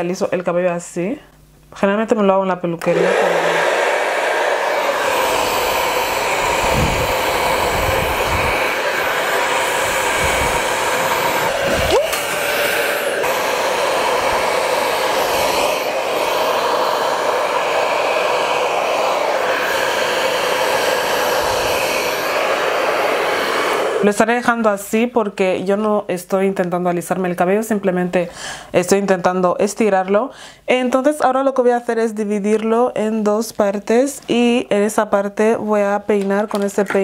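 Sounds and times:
hair dryer blowing air: 0:02.8 - 0:24.6.

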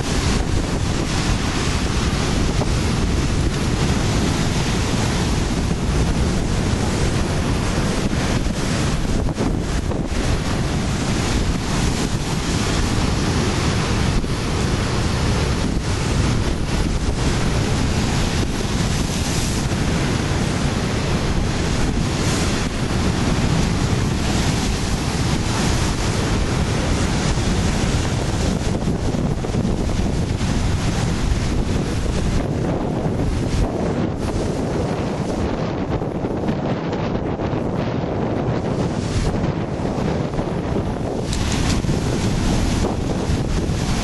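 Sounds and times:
surf breaking on rocky shore: 0:00.0 - 0:44.0
wind buffeting microphone: 0:00.0 - 0:44.0.

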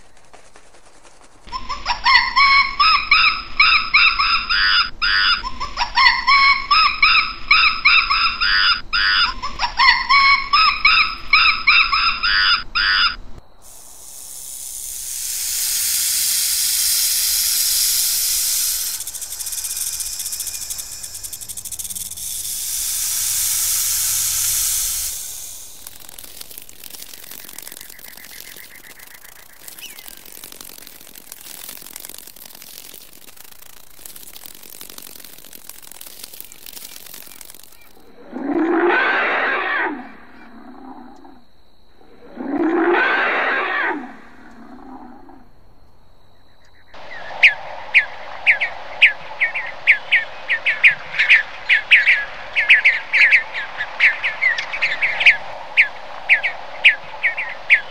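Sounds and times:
monkey high calls: 0:01.5 - 0:30.3
faint steady hiss: 0:13.2 - 0:38.2
faint ticks: 0:13.6 - 0:38.0
snake hissing: 0:13.6 - 0:38.2.

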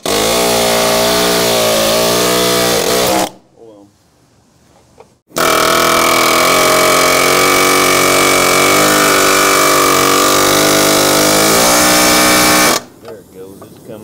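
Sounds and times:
pneumatic air hammer: 0:00.0 - 0:03.4, 0:05.3 - 0:12.9.

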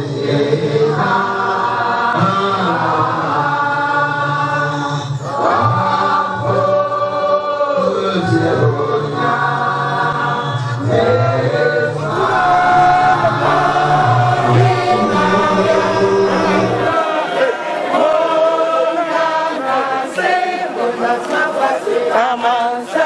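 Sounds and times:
choir singing: 0:00.0 - 0:23.0
low sustained vocal part: 0:08.8 - 0:20.1.

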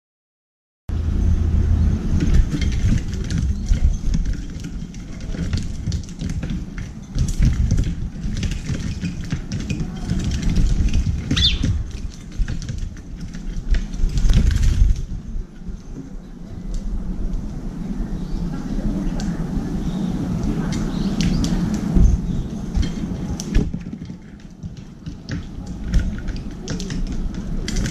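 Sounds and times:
steady low rumble: 0:00.9 - 0:27.9
wings fluttering: 0:09.8 - 0:12.2
beaks pecking on metal: 0:11.1 - 0:12.0
bird chirp: 0:11.3 - 0:11.7.

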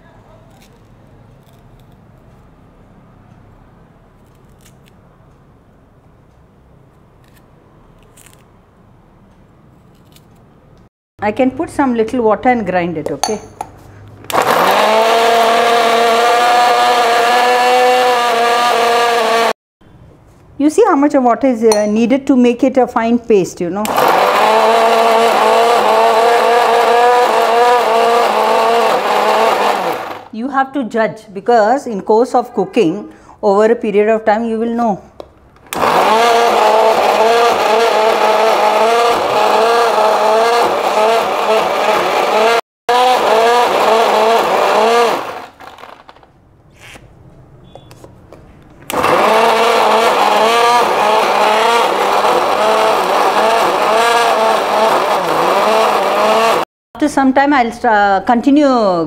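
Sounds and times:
mixer grinder motor whining: 0:14.3 - 0:19.6, 0:23.8 - 0:30.4, 0:35.7 - 0:46.3, 0:48.9 - 0:56.7.

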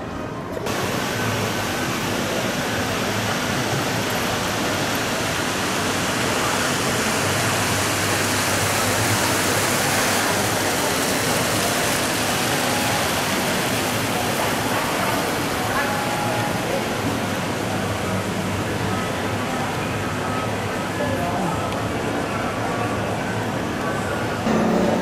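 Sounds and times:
fountain water splashing: 0:00.7 - 0:24.1.

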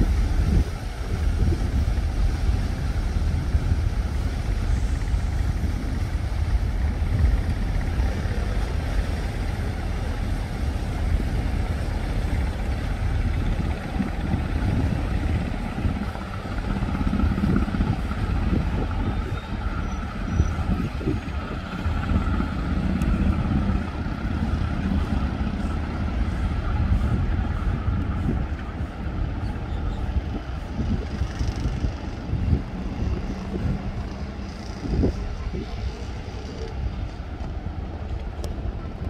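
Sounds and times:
ferry engine drone: 0:00.0 - 0:39.0
high engine whine: 0:00.0 - 0:39.0.

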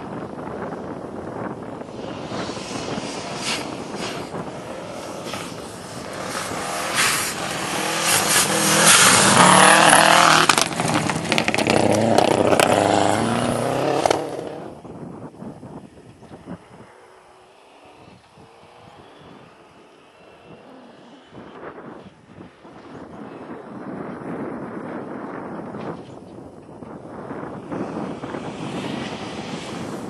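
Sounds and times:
rally car engine passing: 0:00.4 - 0:14.8, 0:27.3 - 0:30.0
gravel crunching and spraying: 0:01.1 - 0:14.7.

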